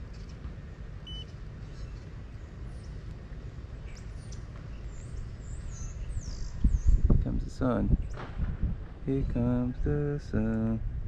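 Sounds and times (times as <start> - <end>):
small birds chirping: 1.1 - 7.2
steady low rumble: 2.2 - 11.0.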